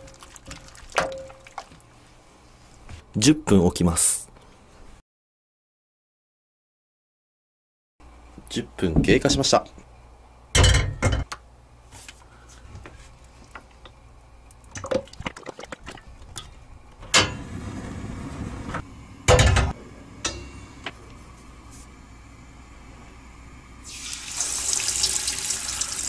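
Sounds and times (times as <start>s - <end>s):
oil pouring into pan: 23.8s - 26.0s.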